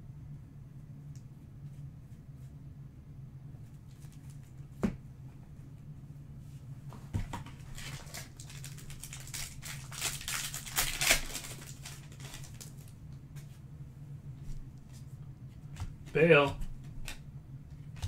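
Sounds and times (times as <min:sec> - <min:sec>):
low hum: 0:00.0 - 0:18.0
foil wrapper crinkling: 0:07.6 - 0:13.0.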